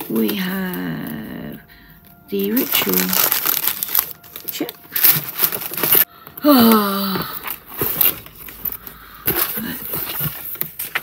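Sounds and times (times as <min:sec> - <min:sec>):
paper rustling and knocks: 0:02.5 - 0:06.1, 0:07.4 - 0:11.0.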